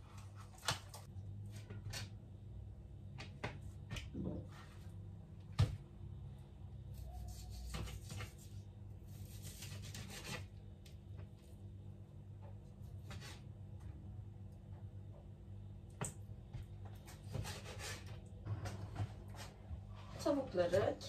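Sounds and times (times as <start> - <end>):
knife cutting raw chicken: 6.9 - 10.5.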